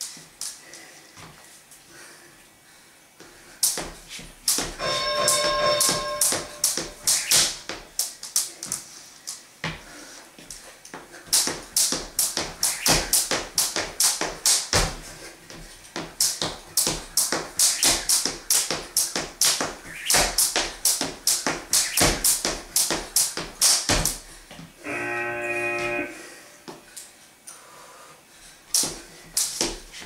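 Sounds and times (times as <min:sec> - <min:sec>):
rope slapping wooden floor: 0:05.8 - 0:09.8, 0:10.5 - 0:24.7.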